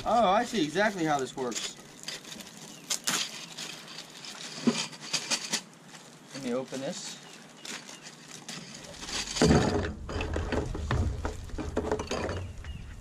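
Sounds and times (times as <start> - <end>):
plastic bag crinkling: 0.0 - 9.7.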